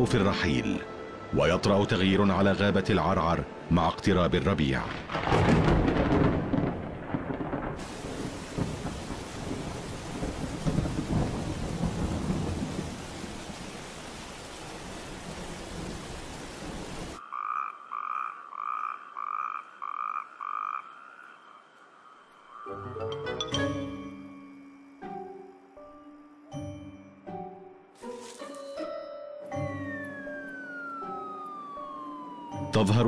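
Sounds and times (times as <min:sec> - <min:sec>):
steady rain: 0:04.6 - 0:17.2
rolling thunder: 0:04.9 - 0:13.6
frog piping calls: 0:17.2 - 0:23.4.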